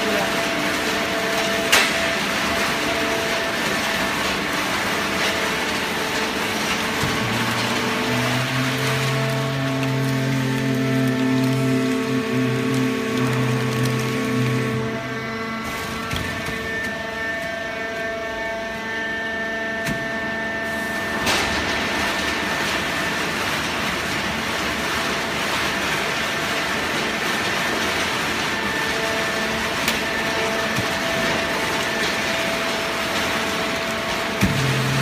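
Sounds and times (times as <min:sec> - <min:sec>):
baler machinery whining: 0:04.9 - 0:19.4.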